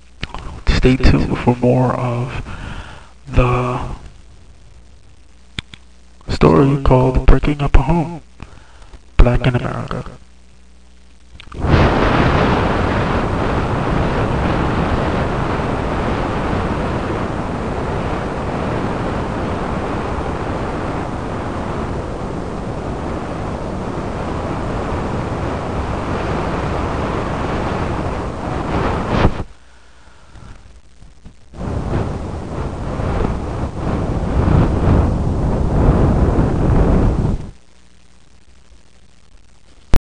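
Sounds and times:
loud steady rushing noise: 11.5 - 29.5, 30.8 - 37.6.

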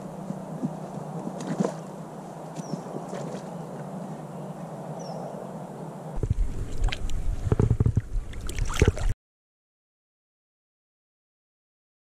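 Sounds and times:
water splashing and sloshing: 0.0 - 4.0, 6.2 - 9.2
wind buffeting microphone: 0.0 - 9.1.

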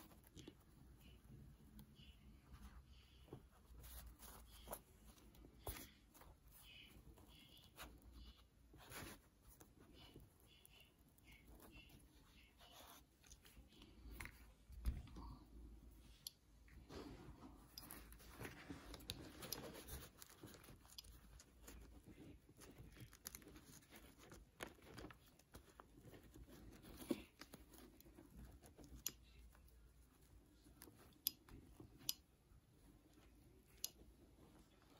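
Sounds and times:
faint rustling of fabric petal: 0.0 - 34.9.

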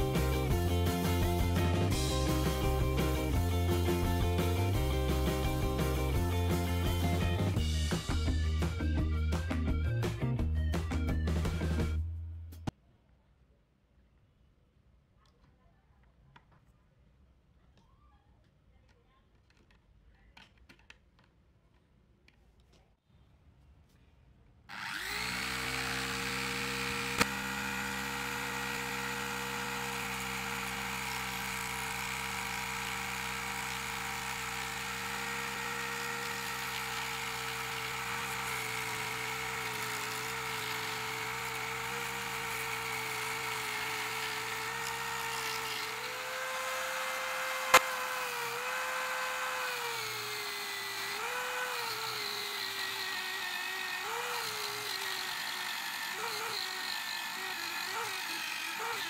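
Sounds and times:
electric drill motor whining: 24.7 - 59.0.

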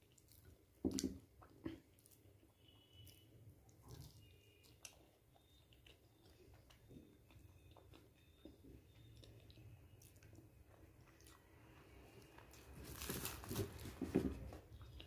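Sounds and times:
quiet chewing: 0.0 - 15.0
crisp bread tearing: 12.6 - 14.0.

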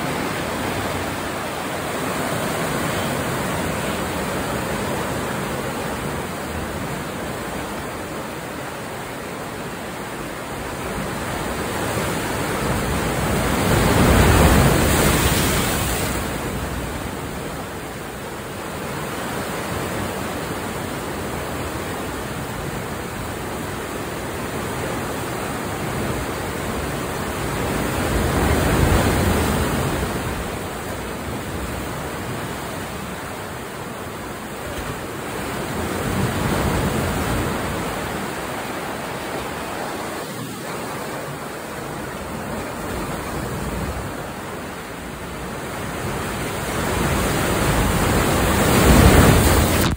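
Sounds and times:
ocean surf in sea cave: 0.0 - 49.9.

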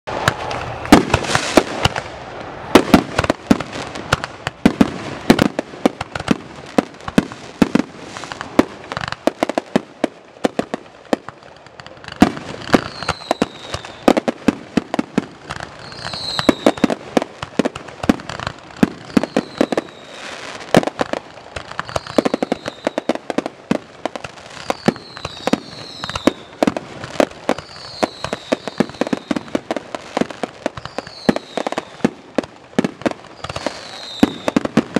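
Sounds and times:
falling firework whistles: 0.1 - 5.6, 12.0 - 23.5, 24.3 - 34.9
fireworks bangs and booms: 0.1 - 34.9.

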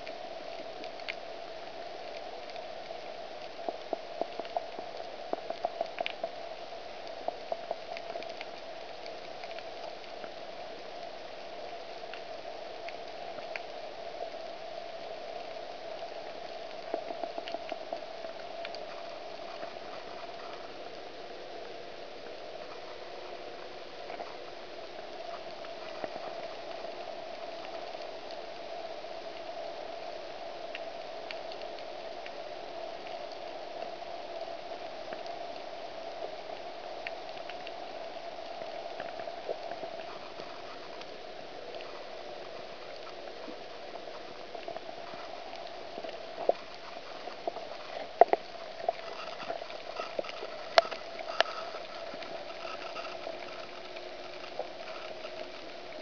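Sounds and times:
underwater crackling hiss: 0.0 - 56.0
sharp underwater clicks: 44.3 - 56.0.

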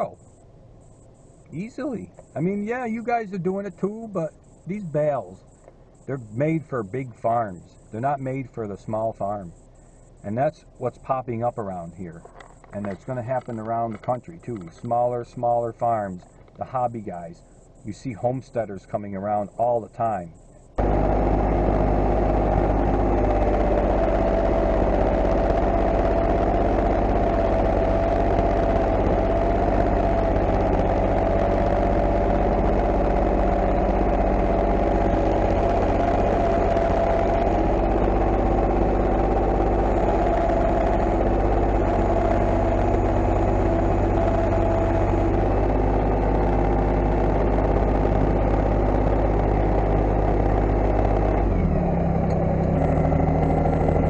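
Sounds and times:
tractor engine running: 0.0 - 54.0
wavering whine: 0.0 - 54.0.

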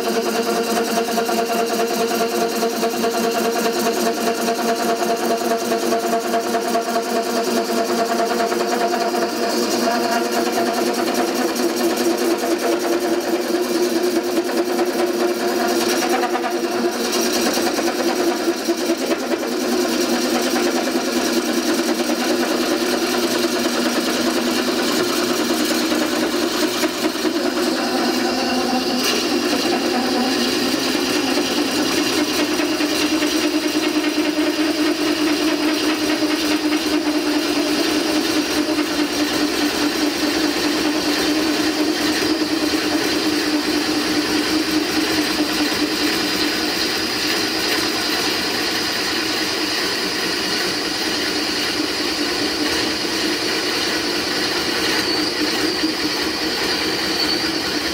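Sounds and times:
motor hum: 6.6 - 49.6.

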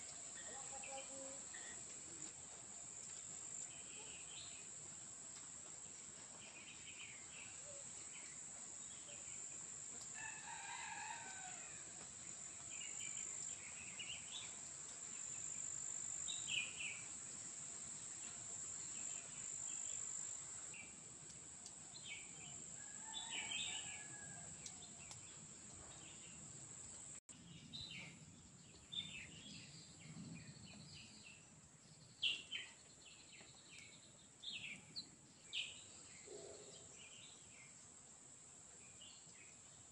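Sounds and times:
insects droning: 0.0 - 27.2
rooster crowing: 10.2 - 12.0, 22.8 - 24.6.

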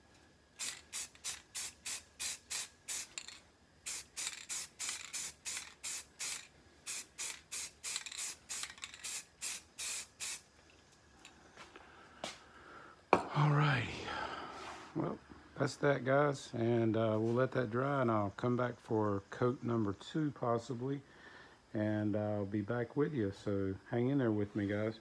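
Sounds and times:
spray paint can bursts: 0.6 - 10.5.

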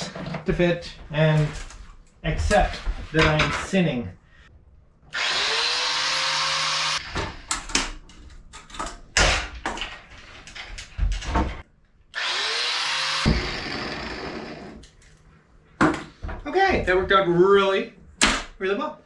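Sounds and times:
power tool whining: 5.1 - 7.2, 12.2 - 14.8
knocks and clatter of handling: 7.7 - 11.6.

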